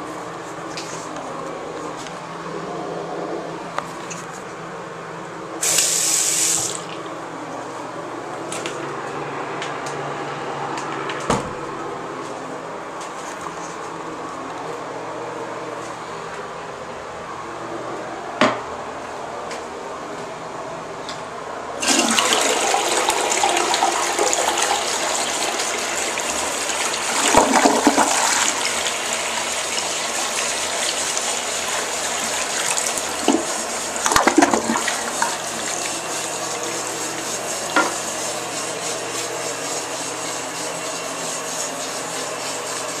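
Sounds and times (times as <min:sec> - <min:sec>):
toilet flushing: 0:05.6 - 0:07.1, 0:21.8 - 0:43.0
water running as toilet refills: 0:05.6 - 0:07.1, 0:21.8 - 0:42.8.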